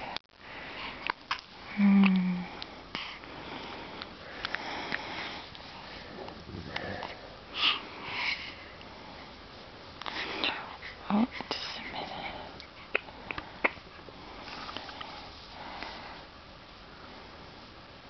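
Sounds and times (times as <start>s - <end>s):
baby sniffing and breathing: 7.5s - 9.3s.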